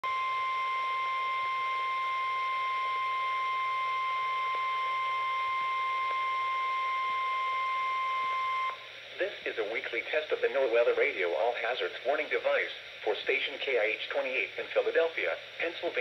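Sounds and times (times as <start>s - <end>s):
high-pitched alarm tone: 0.0s - 8.8s.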